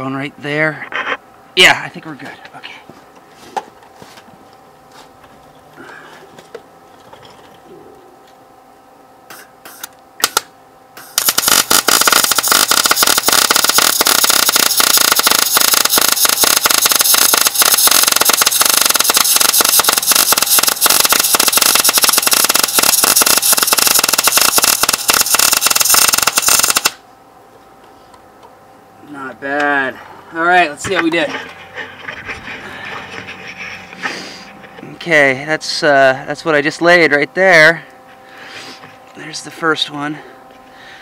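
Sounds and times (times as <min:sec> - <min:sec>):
welder arc crackling: 0:09.3 - 0:27.0.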